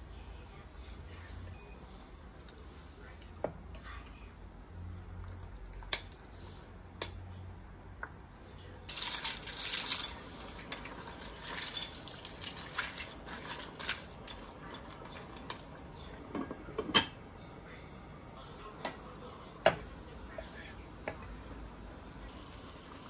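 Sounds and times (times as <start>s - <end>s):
clam shells clattering into pot: 8.9s - 15.6s.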